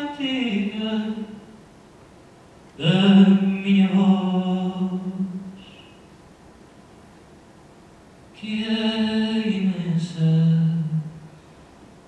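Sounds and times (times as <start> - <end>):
man singing slow phrase: 2.8 - 5.8, 8.4 - 11.3.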